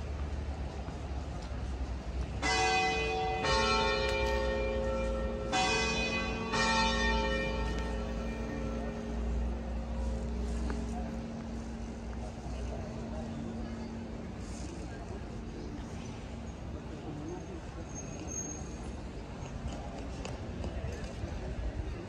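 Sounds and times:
bells ringing: 2.4 - 14.4.

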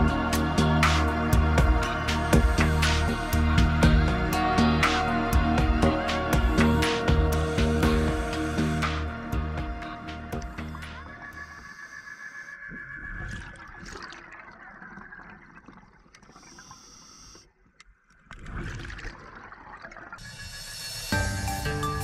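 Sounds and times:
scuba bubbles gurgling: 12.7 - 17.2.

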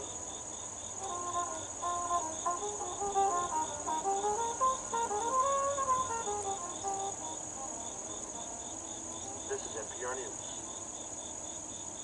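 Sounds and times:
insects buzzing and chirping: 0.0 - 12.0.

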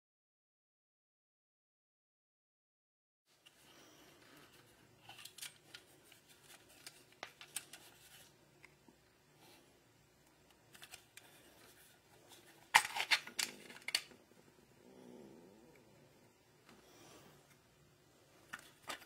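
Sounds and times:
plastic clicks and rubbing: 4.4 - 8.8, 10.5 - 14.2, 18.5 - 19.0.

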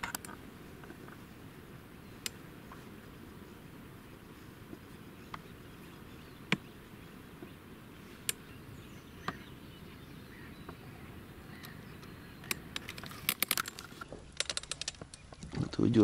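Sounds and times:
low background noise: 0.0 - 16.0
sharp clicks: 2.2 - 2.4, 6.4 - 6.7, 8.2 - 8.5, 11.5 - 15.7.

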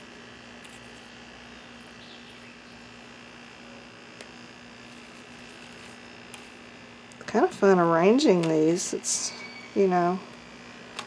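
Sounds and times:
steady low hum: 0.0 - 11.0
insects chirring: 0.5 - 3.4, 7.7 - 10.9.

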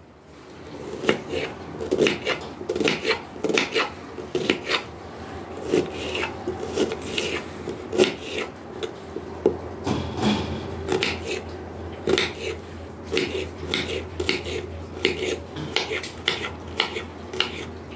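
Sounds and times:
knife cutting through onion: 0.8 - 4.9, 5.6 - 8.9, 10.9 - 11.4, 12.0 - 17.7.

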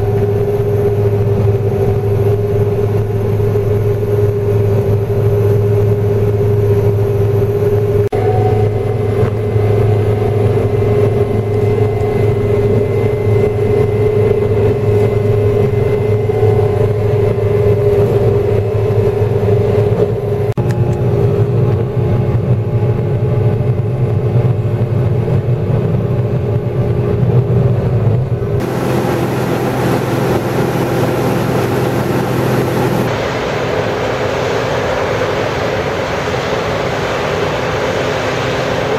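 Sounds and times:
combine engine and threshing drone: 0.0 - 38.9.

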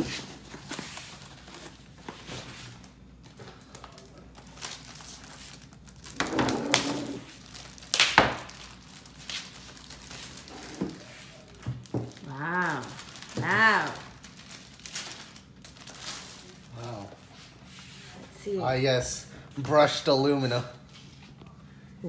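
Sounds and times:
plastic wrapping crinkling: 0.2 - 17.4.

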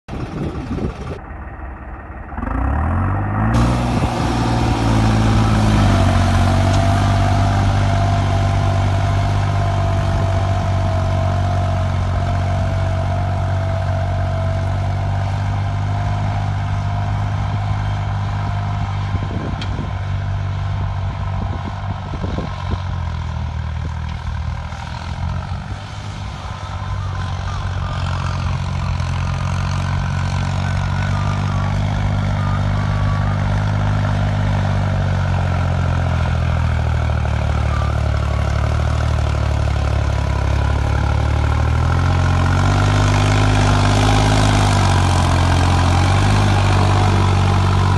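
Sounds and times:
tractor diesel engine under load: 0.0 - 47.9
high whine: 0.1 - 20.1.

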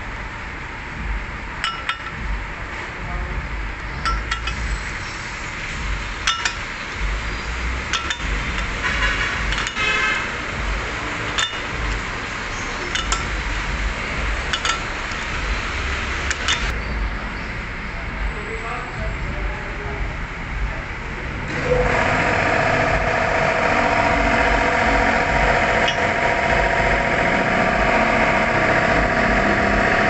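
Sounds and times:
workshop hum: 0.0 - 30.0
wrench clinking against bolt: 1.6 - 2.2, 4.0 - 4.6, 6.3 - 6.6, 7.9 - 8.3, 11.3 - 11.8, 12.9 - 13.3, 14.5 - 14.9
metallic clicks: 7.9 - 8.7, 11.3 - 11.8, 12.9 - 13.3, 14.5 - 15.3, 16.3 - 16.8.

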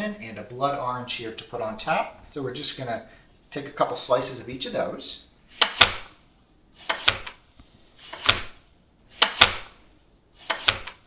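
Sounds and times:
knife slicing fruit: 5.5 - 6.1, 6.8 - 7.4, 8.0 - 9.8, 10.4 - 11.0.

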